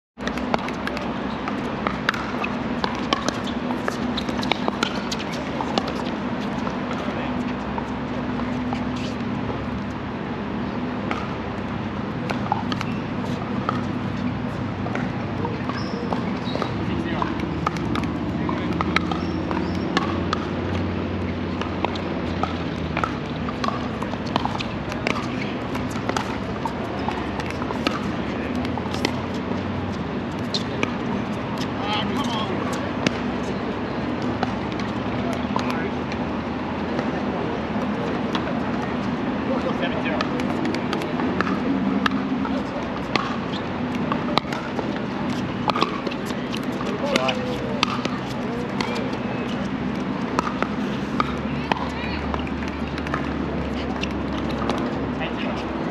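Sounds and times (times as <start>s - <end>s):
outdoor background noise: 0.2s - 55.9s
paddles hitting plastic ball: 14.8s - 20.9s, 21.6s - 29.6s, 40.1s - 49.6s.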